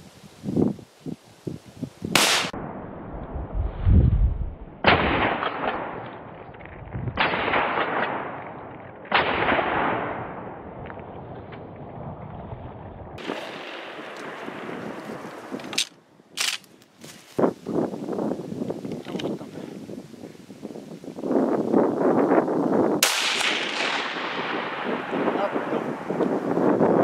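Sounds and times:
shotgun shots echoing: 2.2 - 2.7, 4.8 - 6.3, 7.2 - 10.6, 23.0 - 25.8.

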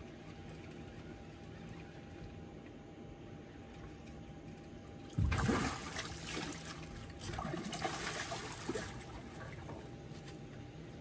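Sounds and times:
water splashing and trickling: 5.0 - 9.9.

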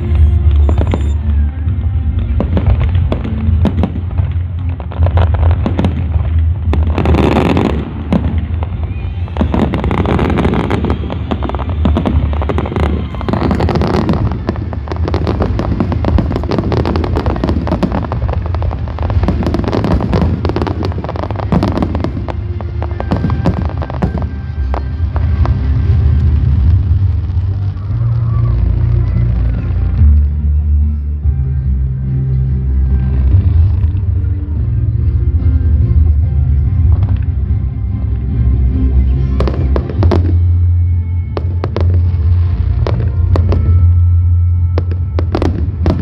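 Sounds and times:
fireworks crackling and popping: 0.0 - 31.2, 32.7 - 34.9, 36.7 - 46.0
loud firework burst: 2.3 - 29.7.

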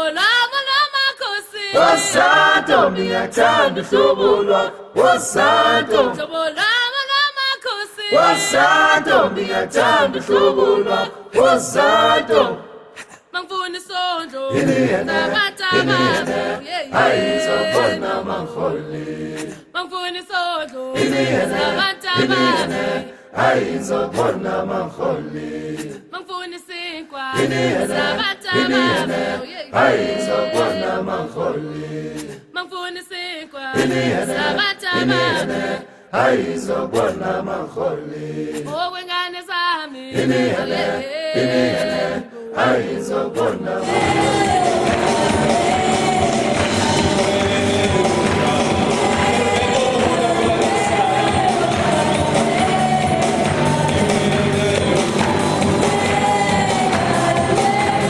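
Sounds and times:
choir singing unaccompanied: 1.3 - 7.1, 7.8 - 12.8, 14.5 - 19.7, 20.9 - 26.1, 27.3 - 32.4, 33.7 - 39.1, 40.1 - 58.0.

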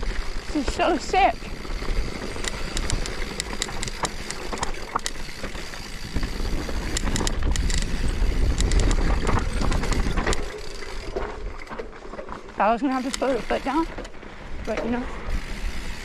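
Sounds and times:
bike rattling and clicking: 0.0 - 16.0
wind rumble on microphone: 5.9 - 10.5.

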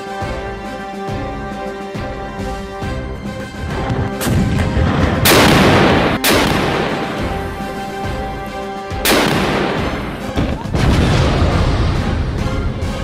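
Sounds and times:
dramatic background music: 0.0 - 13.0
gunfire booms: 3.7 - 7.6, 9.0 - 12.1.

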